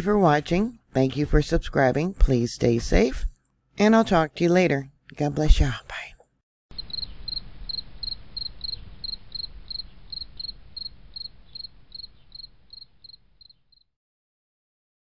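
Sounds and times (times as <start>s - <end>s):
faint low hiss: 5.6s - 13.7s
insect chirping: 6.7s - 13.9s.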